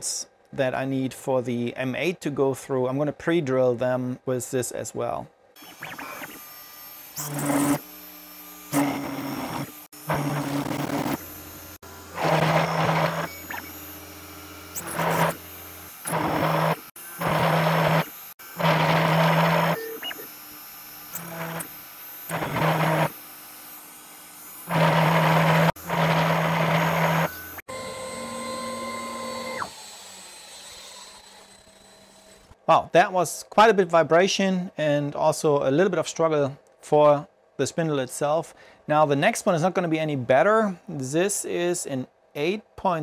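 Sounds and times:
drill bit cutting aluminium: 5.6s - 32.6s
router spindle steady tone: 5.6s - 32.6s.

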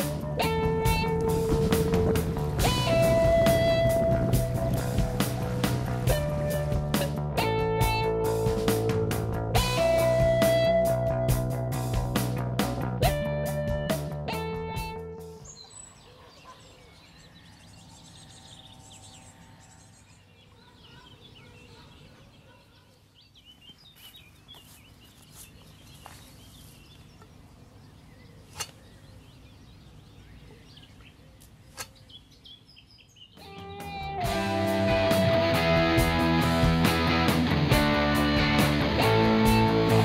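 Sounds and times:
small birds chirping: 0.4s - 7.2s, 14.8s - 33.9s
low rumble: 0.6s - 6.8s.

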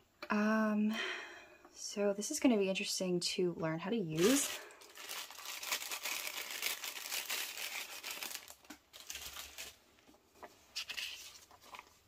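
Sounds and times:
packaging sleeve crinkling: 4.2s - 9.8s
paper rustling: 4.2s - 9.8s, 10.5s - 12.0s.

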